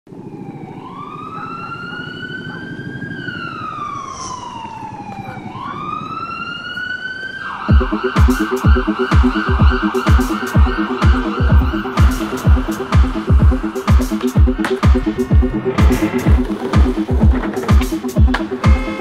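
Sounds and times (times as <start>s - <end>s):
low city rumble: 0.1s - 19.0s
siren wailing: 0.1s - 19.0s
beat with heavy kick drums: 7.7s - 19.0s.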